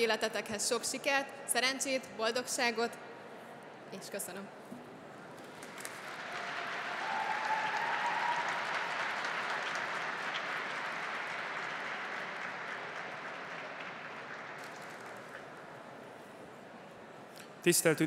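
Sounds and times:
audience applauding: 5.6 - 15.5.

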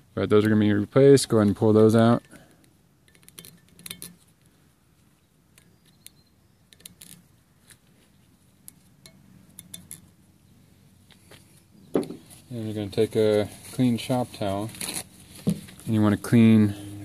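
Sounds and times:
light metallic clinks: 2.1 - 4.3, 8.6 - 10.2.

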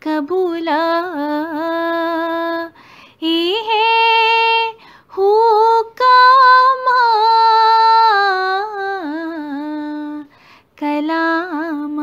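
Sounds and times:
woman singing unaccompanied: 0.0 - 12.0.

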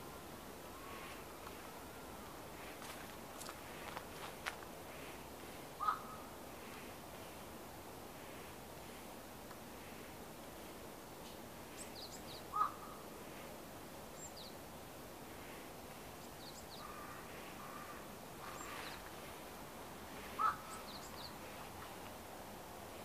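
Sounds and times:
steady background hiss: 0.0 - 23.0
loud bird calls: 5.8 - 6.3, 11.8 - 13.0, 16.3 - 19.1, 20.1 - 21.7
small birds chirping: 11.7 - 13.0, 14.1 - 14.9, 15.5 - 19.4, 20.0 - 22.1.

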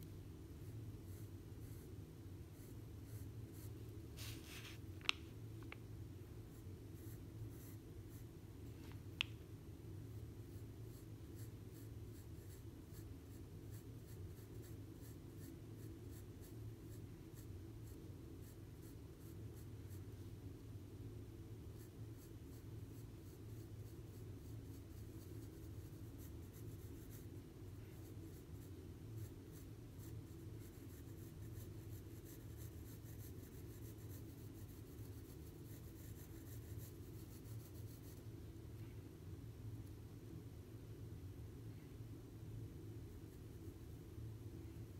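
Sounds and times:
steady low hum: 0.0 - 44.9
pencil scratching on paper: 0.6 - 1.9, 2.5 - 4.8, 6.5 - 8.3, 10.4 - 20.0, 21.7 - 38.2.

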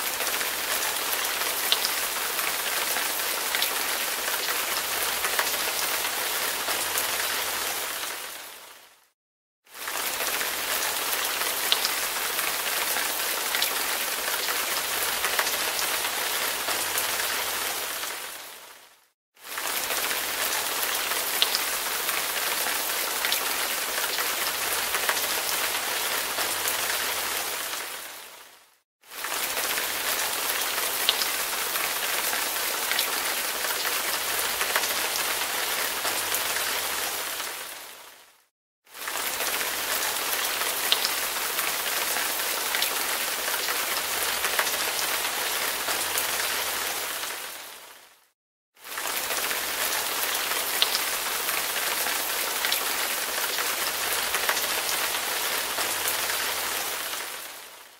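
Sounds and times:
steady rain hiss: 29.4 - 38.3, 49.0 - 57.9.

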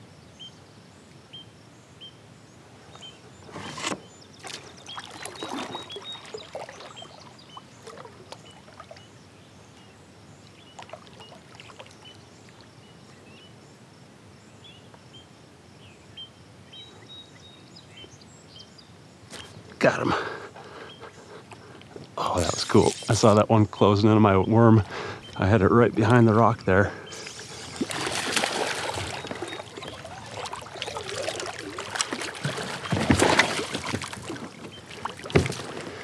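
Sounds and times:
water lapping against kayak hull: 3.4 - 9.8, 10.4 - 12.8, 26.9 - 36.0.

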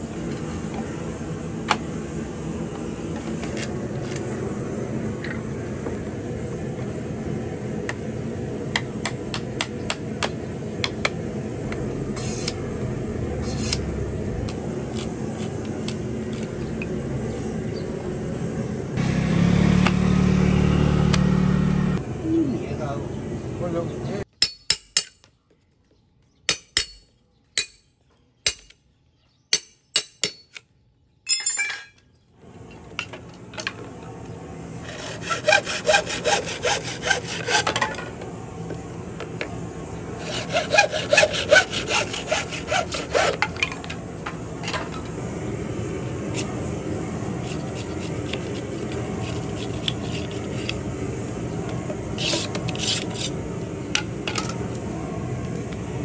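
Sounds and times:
hacksaw cutting bamboo: 34.8 - 38.0, 40.2 - 43.6, 47.4 - 50.8, 52.1 - 53.4.

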